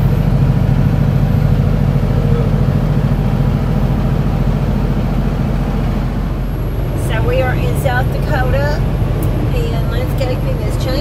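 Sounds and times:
diesel truck engine droning: 0.0s - 11.0s
road noise: 0.0s - 11.0s.

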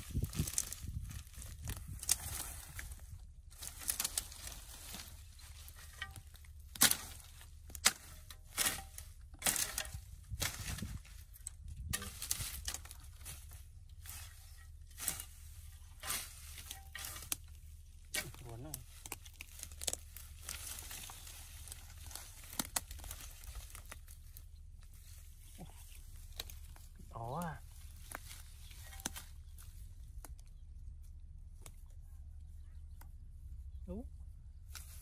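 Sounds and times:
grass and sticks cracking: 0.0s - 33.7s, 34.5s - 35.0s
hoe chopping into ground: 5.8s - 10.9s.

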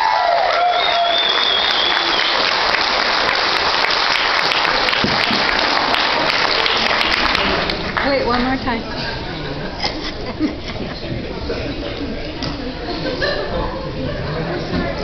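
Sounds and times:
high held cheer: 0.0s - 7.7s
guests applauding: 0.0s - 8.7s.

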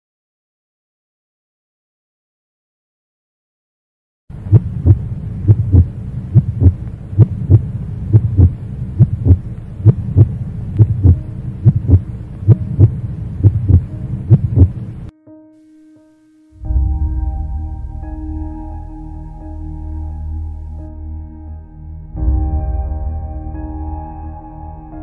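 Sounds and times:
steady low hum: 4.3s - 15.1s, 16.6s - 24.2s
heartbeat thumps: 4.4s - 14.8s.

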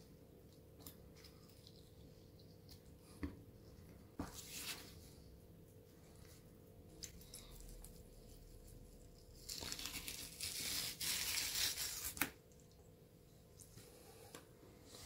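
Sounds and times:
fish skin tearing: 9.2s - 12.4s.

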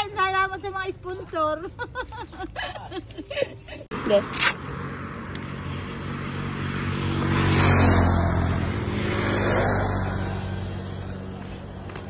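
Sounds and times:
vehicle engine passing by: 3.9s - 12.0s.

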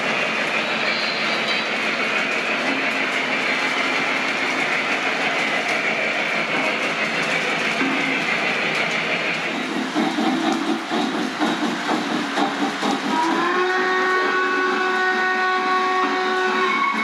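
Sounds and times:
model train wheels whirring: 0.0s - 17.0s.

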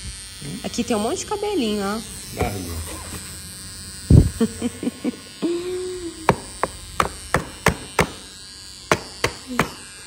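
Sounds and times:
electric hair clippers whining: 0.0s - 10.0s
short hummed tone: 2.1s - 7.0s
sharp taps: 6.3s - 8.2s.

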